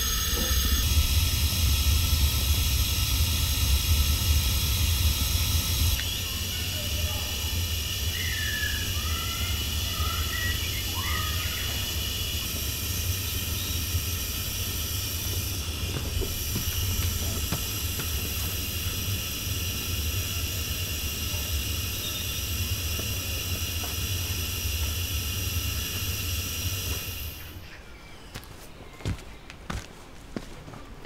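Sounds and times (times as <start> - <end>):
gas burner roaring: 0.0 - 27.7
birds chirping: 7.9 - 17.8.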